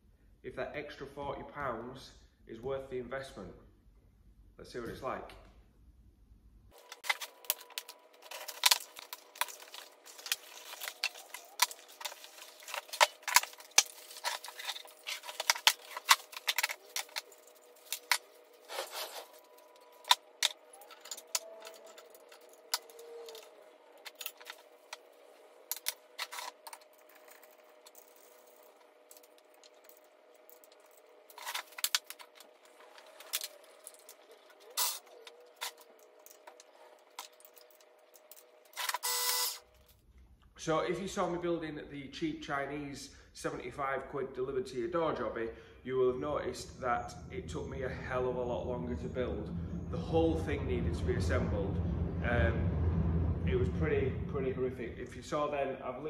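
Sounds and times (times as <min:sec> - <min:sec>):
faint steady hum: 0:00.0 - 0:56.0
cardboard and metal parts rattling: 0:06.8 - 0:39.0.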